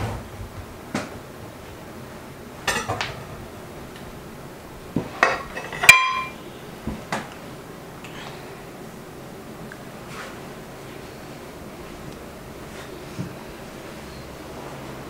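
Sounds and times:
tableware clinking and knocking: 0:02.7 - 0:03.2, 0:05.1 - 0:06.4
loud ringing clink: 0:05.6 - 0:06.4.

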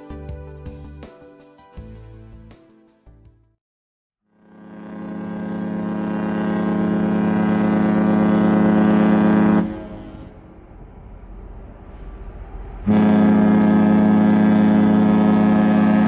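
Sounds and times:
ship horn blast: 0:04.4 - 0:10.8, 0:12.8 - 0:16.0
low rumble: 0:09.6 - 0:12.9.

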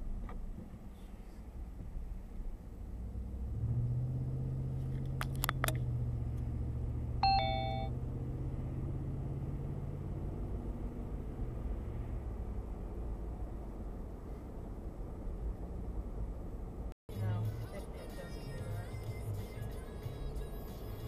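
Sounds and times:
car engine hum from inside cabin: 0:00.0 - 0:21.0
electronic two-note chime: 0:07.2 - 0:07.9.

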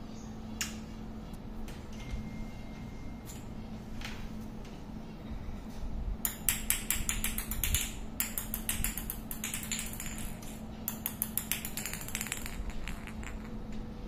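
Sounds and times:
faint steady hum: 0:00.0 - 0:14.0
ball clicking on marble floor: 0:06.3 - 0:13.9.

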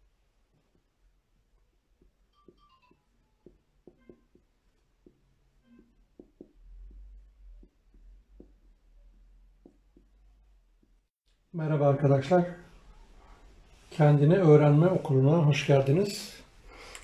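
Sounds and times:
marker tapping and scraping on whiteboard: 0:00.5 - 0:01.0, 0:01.6 - 0:11.1.

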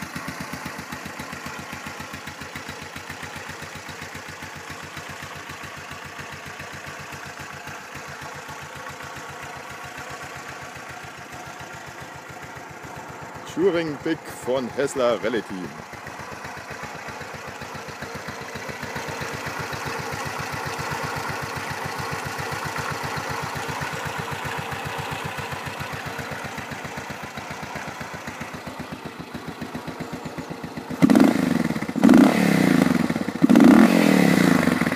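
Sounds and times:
motorcycle engine idling: 0:00.0 - 0:34.9
motorcycle engine revving: 0:00.0 - 0:34.9.

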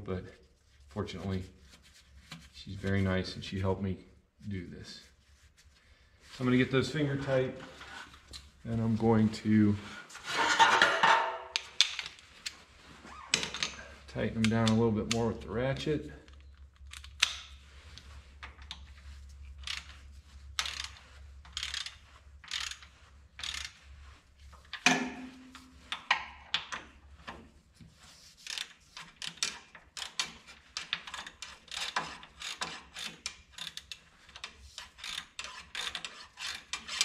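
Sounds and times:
metal clank: 0:24.8 - 0:25.7.

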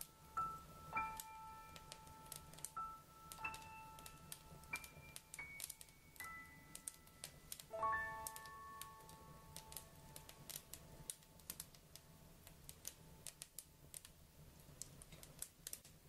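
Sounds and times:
chime-like ringing notes: 0:02.8 - 0:09.4
faint sharp clicks: 0:09.1 - 0:16.0.

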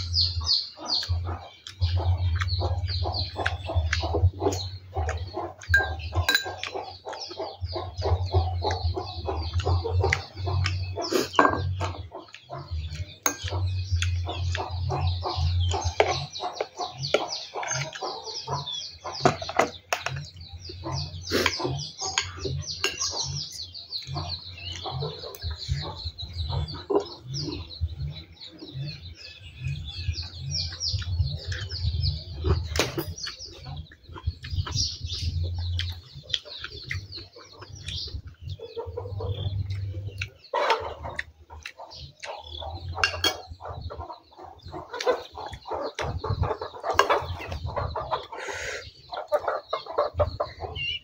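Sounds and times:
pulsing low hum: 0:00.0 - 0:16.4
chickens clucking: 0:00.0 - 0:51.0
small birds chirping: 0:00.0 - 0:51.0
metal spoon clicking on ceramic: 0:05.7 - 0:06.5.

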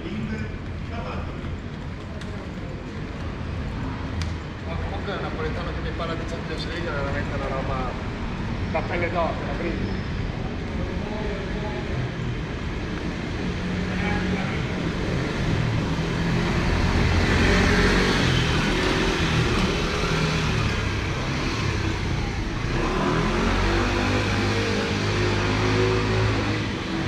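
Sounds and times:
motor vehicle passing: 0:11.2 - 0:27.0.

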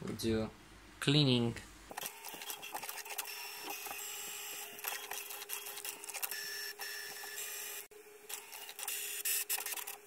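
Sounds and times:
printer motors clicking: 0:01.9 - 0:07.7, 0:08.3 - 0:10.0.

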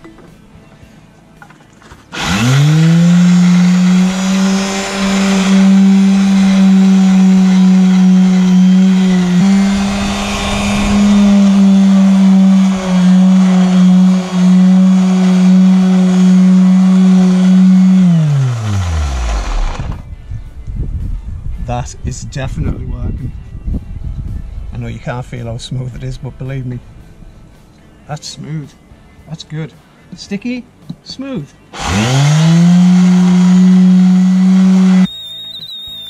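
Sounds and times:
electric sander humming: 0:02.1 - 0:20.0, 0:31.8 - 0:35.1.

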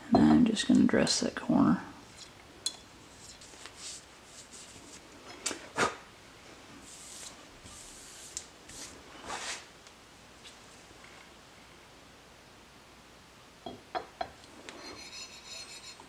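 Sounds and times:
hand wiping stone surface: 0:06.8 - 0:09.7.

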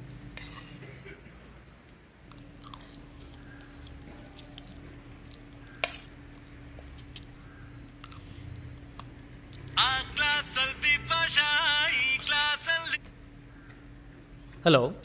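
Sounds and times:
low steady hum: 0:00.0 - 0:15.0
faint chewing: 0:02.3 - 0:09.8.

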